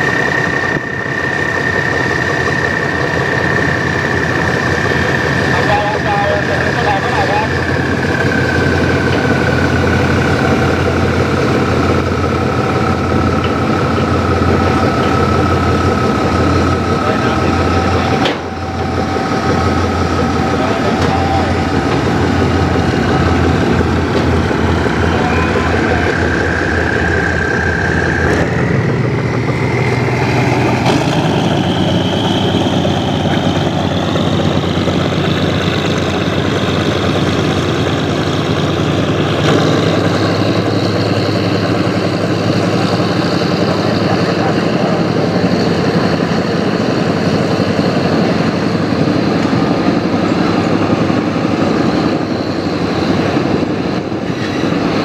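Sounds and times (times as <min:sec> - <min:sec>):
diesel train engine running: 0:00.0 - 0:55.0
engine whine climbing in pitch: 0:00.0 - 0:55.0.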